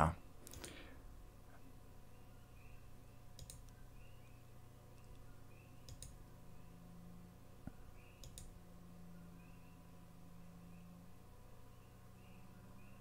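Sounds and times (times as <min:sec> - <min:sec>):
faint low hum: 0:00.0 - 0:13.0
computer mouse clicking: 0:00.4 - 0:00.8, 0:03.3 - 0:03.8, 0:05.8 - 0:06.2, 0:08.1 - 0:08.5.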